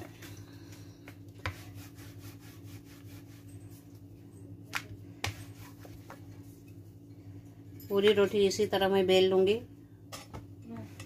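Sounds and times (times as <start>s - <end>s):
rolling pin rubbing dough: 1.3s - 4.0s, 5.2s - 6.5s.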